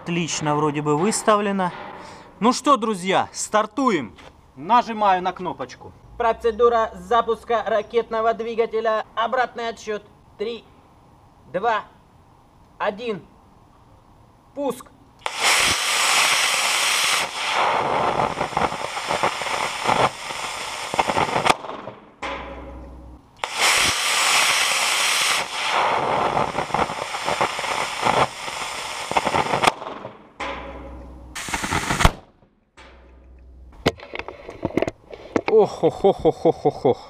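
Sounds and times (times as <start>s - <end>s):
rocket motor crackling hiss: 15.2s - 22.0s, 23.4s - 30.2s, 31.3s - 32.2s
ejection charge bang: 21.0s - 24.0s, 29.1s - 34.1s.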